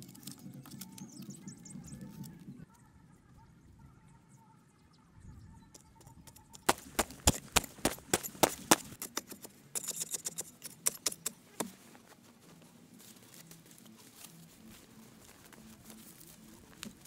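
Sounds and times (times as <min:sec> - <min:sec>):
digging stick knocking into soil: 0:06.6 - 0:09.6
loose earth scraping: 0:06.6 - 0:17.0.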